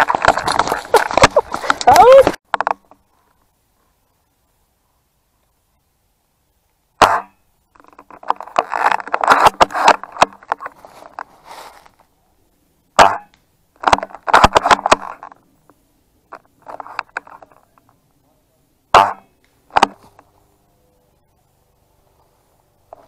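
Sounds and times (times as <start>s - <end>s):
crackling in dry leaves: 0.0s - 4.2s, 7.7s - 12.3s.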